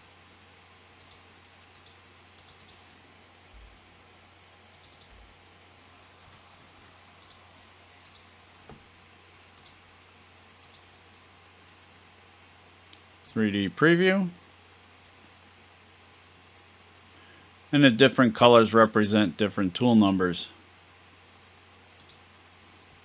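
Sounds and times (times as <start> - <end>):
low steady hum: 0.0 - 23.0
mouse and keyboard clicks: 1.0 - 2.8, 4.7 - 5.3, 7.2 - 7.4, 8.0 - 8.3, 10.6 - 10.9.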